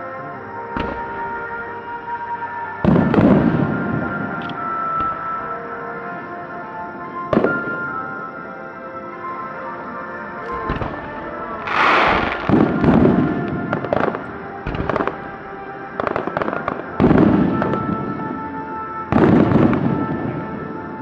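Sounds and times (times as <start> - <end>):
background music: 0.0 - 21.0
fireworks bursting: 0.7 - 1.6, 2.8 - 5.5, 7.3 - 8.2, 10.4 - 21.0
fireworks crackling: 2.8 - 5.6, 7.3 - 8.1, 10.4 - 21.0.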